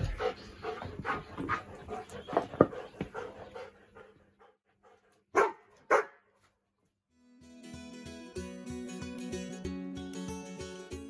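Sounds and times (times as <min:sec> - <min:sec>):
dog panting: 0:00.0 - 0:05.5
dog barking: 0:05.3 - 0:06.3.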